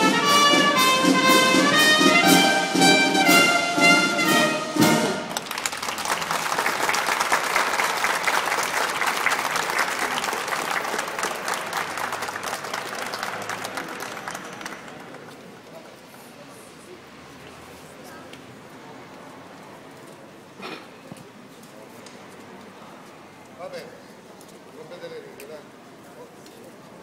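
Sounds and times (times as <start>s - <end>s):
brass band playing: 0.0s - 5.5s
crowd applause: 4.2s - 16.0s.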